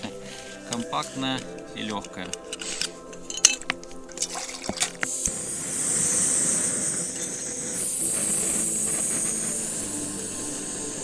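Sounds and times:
gas stove hissing: 4.8s - 11.0s.

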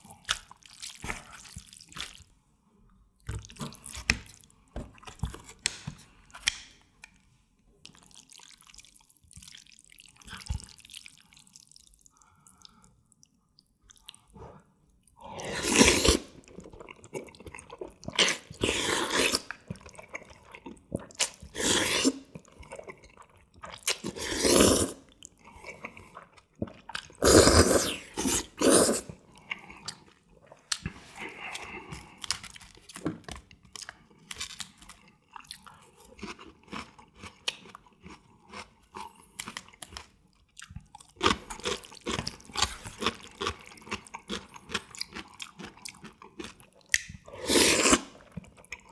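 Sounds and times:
person slurping noodles: 15.2s - 16.4s, 18.1s - 19.6s, 21.4s - 22.3s, 24.0s - 26.0s, 27.1s - 29.8s, 47.2s - 48.3s.

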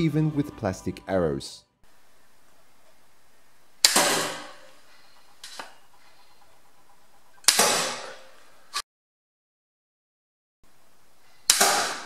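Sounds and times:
arrow striking board: 3.8s - 4.7s, 7.4s - 8.2s, 11.5s - 12.0s
bow shot cracking: 3.8s - 4.8s, 7.4s - 8.8s, 11.5s - 12.0s.

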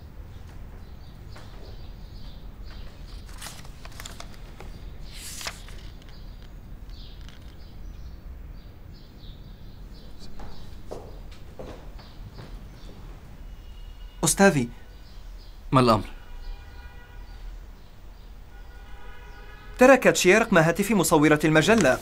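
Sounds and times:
paper rustling: 2.8s - 7.6s, 21.3s - 22.0s.

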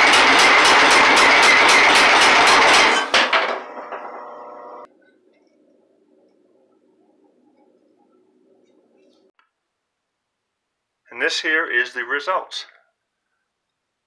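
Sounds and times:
power hammer pounding metal: 0.0s - 4.2s
machine running: 0.0s - 4.9s.

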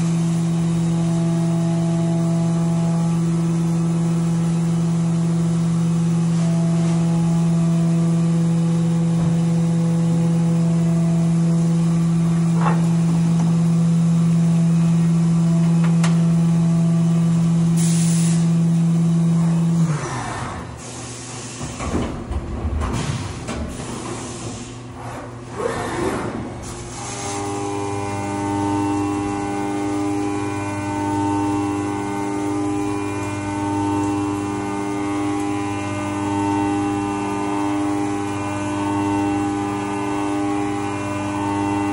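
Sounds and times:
milling machine cutting metal: 26.9s - 41.9s.

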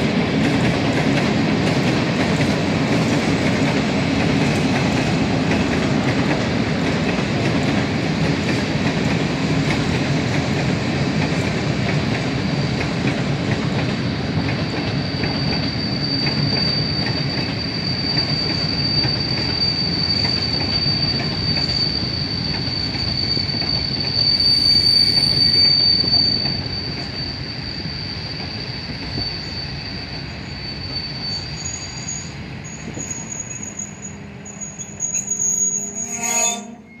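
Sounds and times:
train wheels rumbling on rail: 0.0s - 37.0s
high squeal of wheels: 14.0s - 37.0s.

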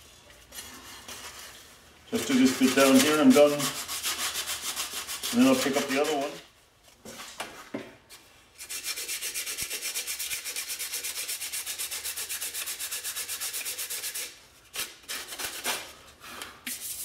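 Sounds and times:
sandpaper rubbing on metal: 2.2s - 6.4s, 8.6s - 15.8s, 16.7s - 17.0s.

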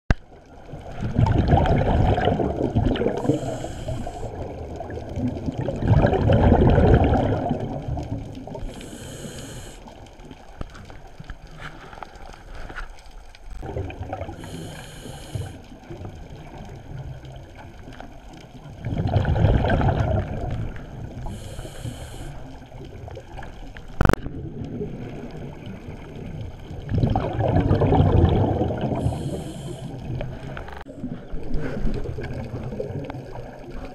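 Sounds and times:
bubbling rumble of exhaled bubbles: 0.2s - 11.5s, 13.4s - 33.9s
regulator hissing inhale: 3.2s - 4.5s, 8.6s - 10.1s, 14.4s - 15.7s, 21.2s - 22.7s, 28.9s - 30.2s.

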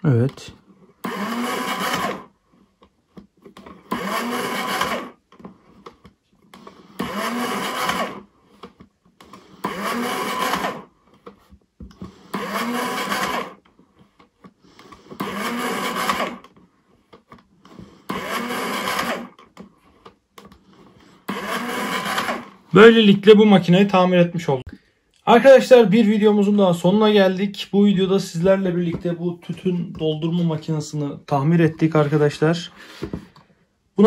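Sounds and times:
machine motor whirring: 1.0s - 2.3s, 3.6s - 5.2s, 6.6s - 8.2s, 9.2s - 10.9s, 12.0s - 13.6s, 14.8s - 16.5s, 17.7s - 19.4s, 21.2s - 22.9s.

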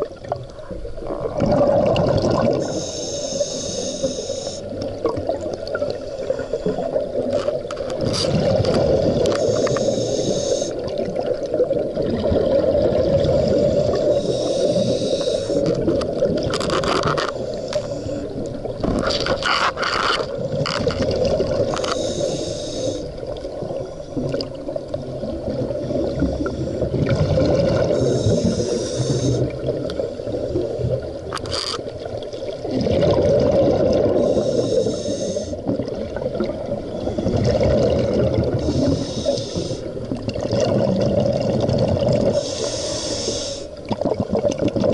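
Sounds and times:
bubbles rushing: 1.0s - 2.7s, 8.0s - 9.4s, 10.8s - 14.1s, 20.3s - 21.8s, 23.5s - 28.1s, 32.3s - 34.4s, 35.6s - 38.8s, 40.0s - 42.4s, 43.9s - 44.9s
diver breathing through regulator: 2.4s - 4.8s, 8.2s - 10.9s, 13.2s - 15.8s, 17.2s - 18.5s, 21.6s - 23.2s, 26.3s - 29.6s, 34.0s - 35.6s, 36.8s - 37.8s, 38.5s - 40.0s, 42.2s - 43.8s.

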